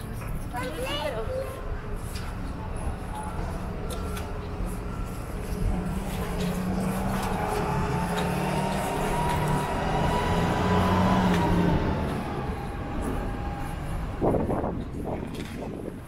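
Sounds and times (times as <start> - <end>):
vehicle passing with engine whine: 3.3 - 16.0.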